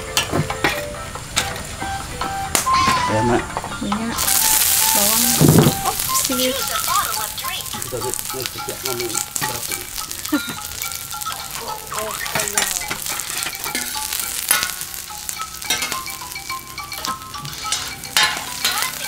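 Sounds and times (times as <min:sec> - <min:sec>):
onion sizzling in oil: 0:00.8 - 0:19.0
spatula scraping pan: 0:08.8 - 0:19.0.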